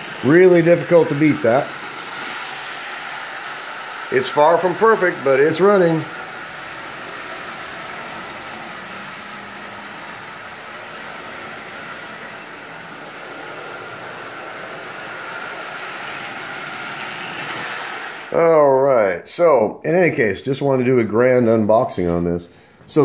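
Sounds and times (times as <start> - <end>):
toy train motor and wheels rattling: 0.0 - 18.8.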